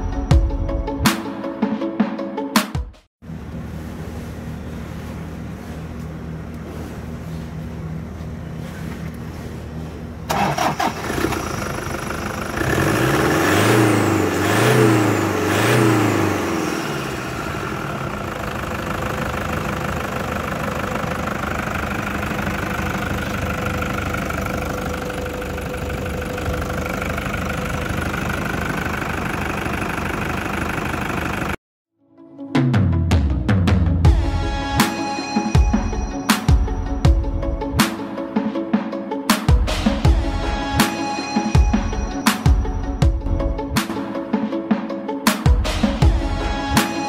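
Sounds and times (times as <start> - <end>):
diesel engine idling: 3.3 - 31.6
diesel engine starting and revving: 3.3 - 31.6.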